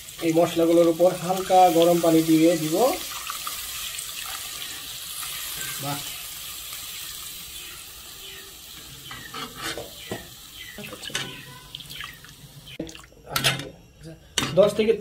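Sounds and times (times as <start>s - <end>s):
water hissing into hot pan: 0.0s - 12.8s
spatula scraping pan: 9.0s - 10.0s.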